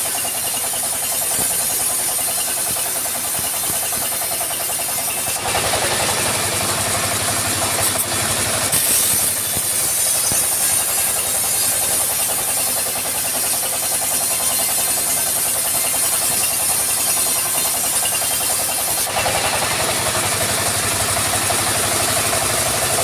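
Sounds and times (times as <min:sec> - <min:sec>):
saw blade hissing: 0:00.0 - 0:20.2
engine chugging: 0:00.0 - 0:23.0.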